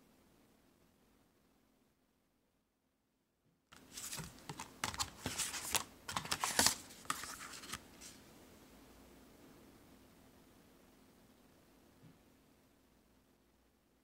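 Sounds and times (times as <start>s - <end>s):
photo prints and plastic sleeve rustling: 3.8s - 8.2s.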